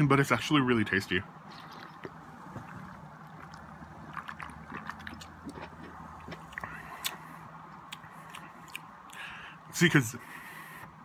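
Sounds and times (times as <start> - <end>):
wet mouth clicks and gulps: 1.4 - 9.3
person sipping and swallowing: 1.4 - 9.4.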